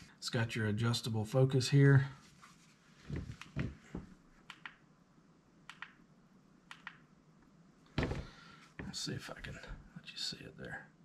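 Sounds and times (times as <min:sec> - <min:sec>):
soft bumps of handling: 0:02.3 - 0:04.2, 0:07.9 - 0:09.0.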